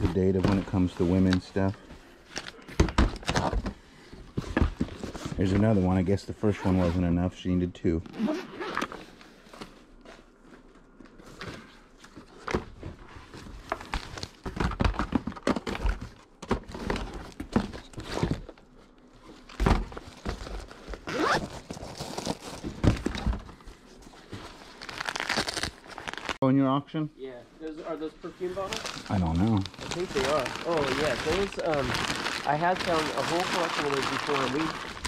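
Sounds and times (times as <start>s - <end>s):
objects knocking and thunking: 2.6s - 5.6s, 13.6s - 18.6s, 19.5s - 21.0s, 22.5s - 23.8s
packing crinkling: 24.5s - 26.4s, 28.5s - 35.0s.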